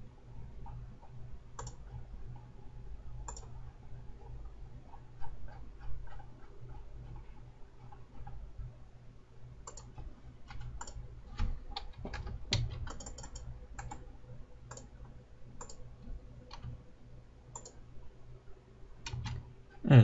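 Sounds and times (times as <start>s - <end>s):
low steady hum: 0.0s - 20.0s
mouse and keyboard clicking: 1.6s - 1.8s, 3.2s - 3.5s, 9.6s - 11.0s, 11.7s - 14.0s, 15.6s - 15.8s, 17.5s - 17.8s.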